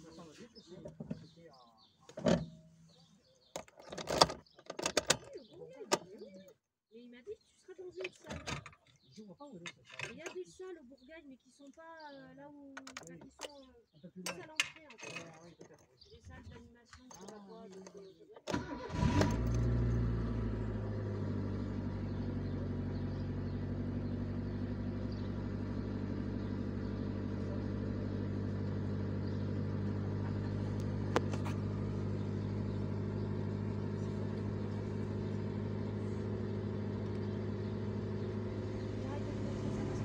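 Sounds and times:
car engine fast idle: 18.5 - 40.0.

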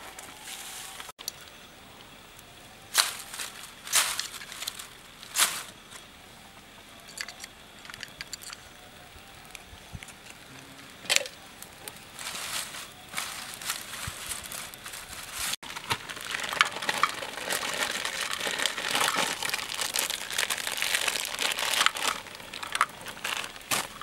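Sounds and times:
leaves crackling: 0.0 - 6.2, 8.8 - 24.0
rustling kindling: 2.9 - 6.2, 9.4 - 24.0.

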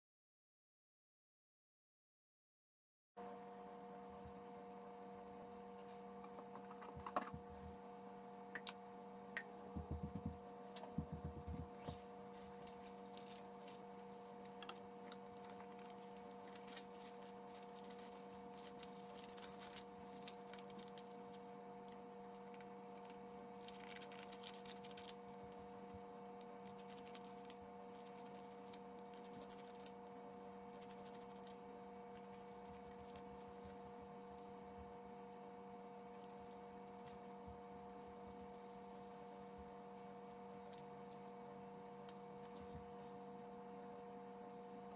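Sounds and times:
steady low hum: 3.2 - 44.9
paper rustling and crinkling: 11.7 - 26.0
scissors snipping paper: 26.3 - 30.0.

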